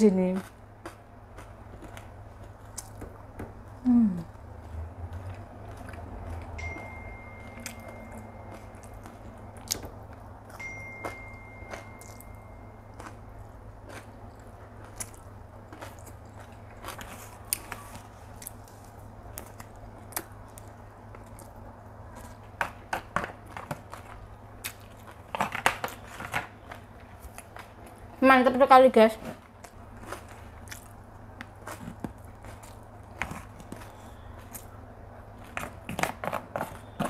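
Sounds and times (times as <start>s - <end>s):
low hum: 3.3s - 22.6s
chewing noodles: 4.2s - 6.6s, 12.9s - 22.5s, 29.6s - 37.0s.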